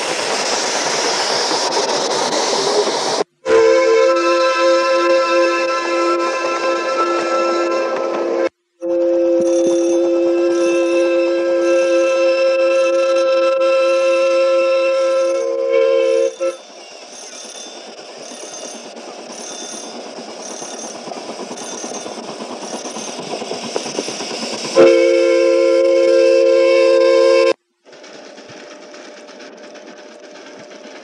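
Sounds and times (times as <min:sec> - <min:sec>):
train running noise: 0:00.0 - 0:31.0
steam locomotive chime whistle: 0:03.4 - 0:23.3, 0:24.8 - 0:27.6.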